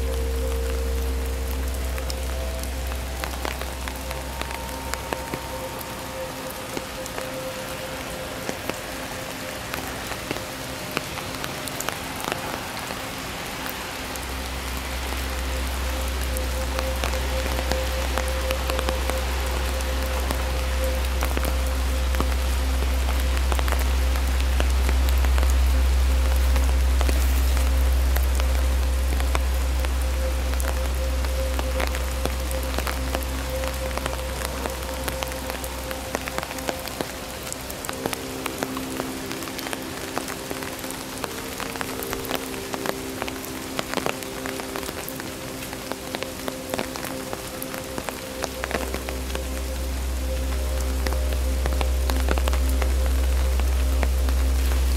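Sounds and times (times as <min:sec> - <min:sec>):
rain falling through tree leaves: 0:00.0 - 0:54.9
low rumble: 0:14.0 - 0:37.8, 0:48.8 - 0:54.9.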